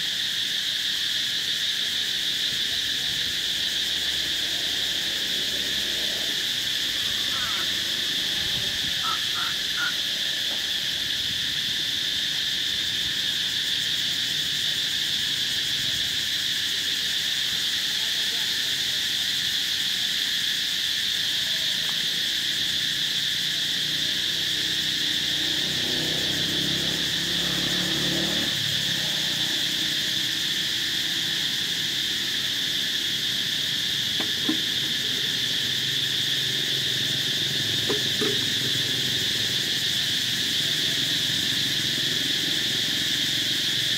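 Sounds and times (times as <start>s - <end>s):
high-pitched insect chorus: 0.0s - 43.9s.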